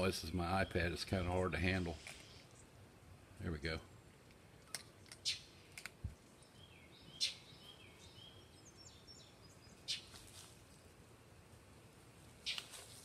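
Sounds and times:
faint bird chirps: 5.0 - 11.3.

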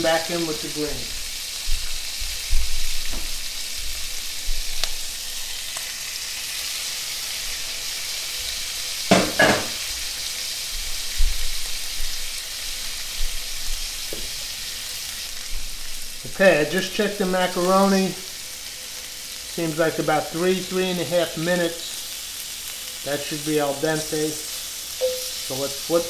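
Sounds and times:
shrimp sizzling in a skillet: 0.0 - 26.0
louder knocks: 9.1 - 9.8.

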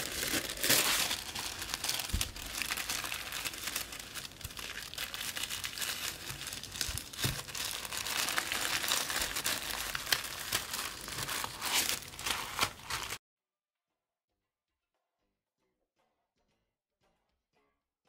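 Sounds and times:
wrapping paper crinkling: 0.0 - 13.2.

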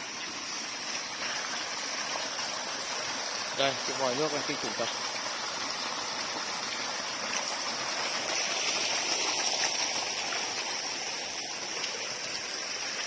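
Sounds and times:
water gushing from a pipe: 0.0 - 13.0
water splashing on wet ground: 0.0 - 13.0.

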